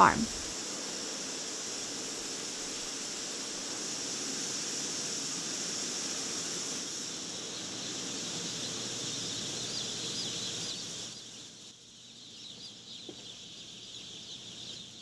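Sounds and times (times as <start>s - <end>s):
machinery and ventilation hiss: 0.0s - 15.0s
baby chicks peeping: 7.3s - 15.0s.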